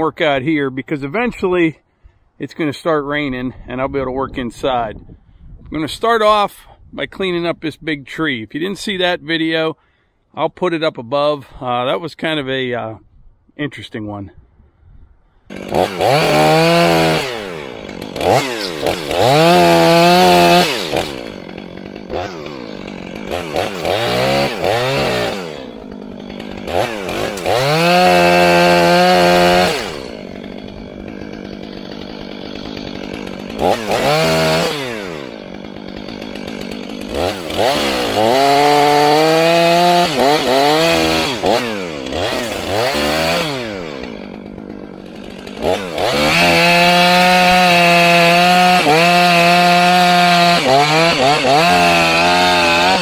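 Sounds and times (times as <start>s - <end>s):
chainsaw revving and idling: 15.5s - 53.0s.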